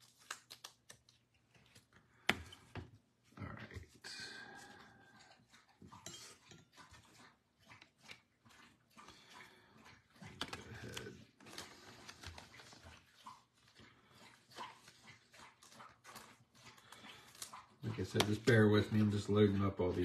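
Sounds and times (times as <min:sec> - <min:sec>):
cards and plastic holders handled: 0:00.0 - 0:03.0, 0:10.3 - 0:13.8, 0:15.6 - 0:20.0.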